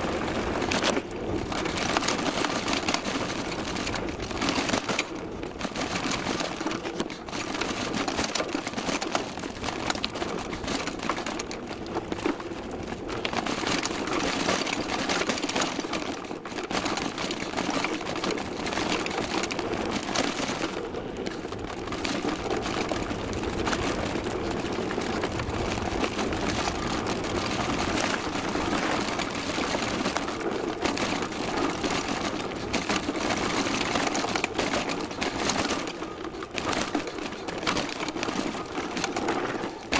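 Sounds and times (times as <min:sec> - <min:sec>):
mountain bike rattling on dirt trail: 0:00.0 - 0:39.9
tyre noise: 0:00.0 - 0:39.9.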